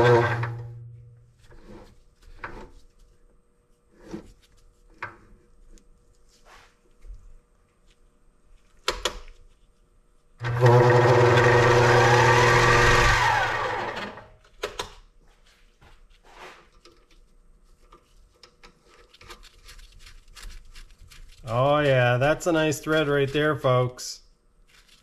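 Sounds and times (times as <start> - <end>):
lathe motor and gears running: 0.0 - 0.8, 10.4 - 14.3.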